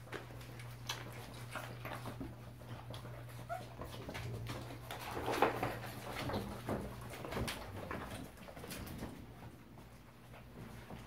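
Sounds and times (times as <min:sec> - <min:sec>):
puppy whimper: 0:02.8 - 0:04.2.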